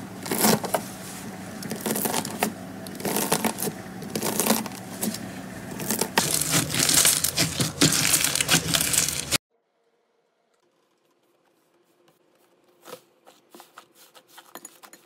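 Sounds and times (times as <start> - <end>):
crunchy slime crackling: 5.8 - 9.4.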